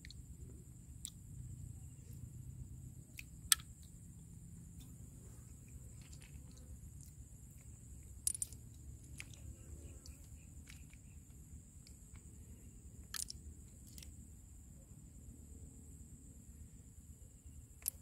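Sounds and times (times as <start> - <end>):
clam shells clicking: 3.5 - 3.7, 8.2 - 9.4, 10.6 - 11.0, 13.1 - 14.1, 17.8 - 18.0.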